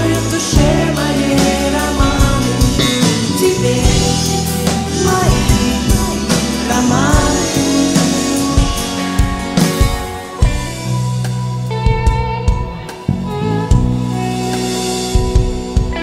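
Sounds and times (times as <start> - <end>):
woman singing: 0.0 - 8.9
live band playing pop song: 0.0 - 16.0.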